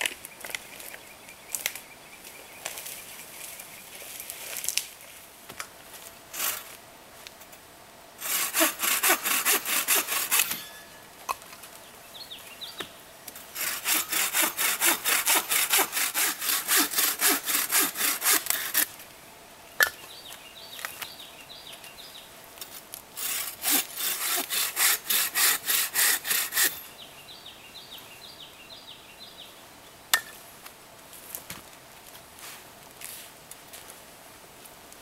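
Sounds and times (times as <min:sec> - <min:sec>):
bow saw cutting wood: 0:08.2 - 0:10.6, 0:13.5 - 0:18.9, 0:23.2 - 0:26.8.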